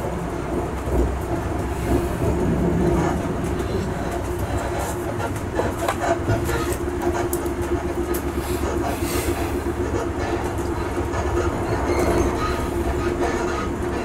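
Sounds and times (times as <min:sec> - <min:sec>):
train rumble and hum: 0:00.0 - 0:14.0
wheels clicking over rails: 0:00.0 - 0:14.0.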